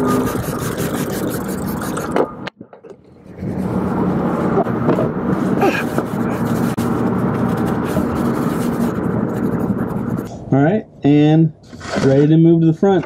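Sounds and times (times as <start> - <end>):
cloth rag wiping metal: 0.0 - 2.2, 5.3 - 10.3
steady low hum: 0.0 - 11.7.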